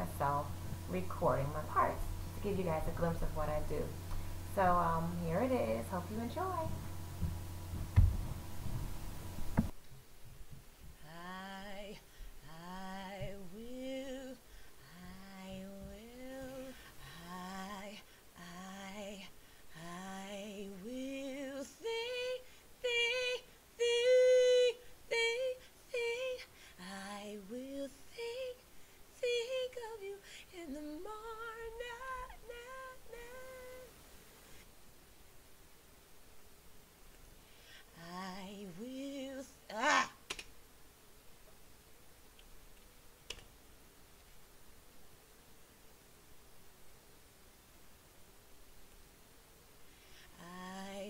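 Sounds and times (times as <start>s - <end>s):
woman singing: 0.0s - 6.9s, 11.0s - 33.9s, 37.8s - 40.2s, 50.3s - 51.0s.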